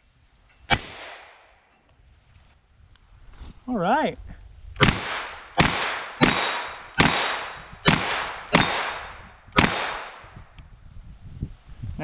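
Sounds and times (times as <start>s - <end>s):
bullet clanging on steel plate: 0.7s - 1.8s, 8.0s - 10.3s
gunshots: 4.8s - 10.4s.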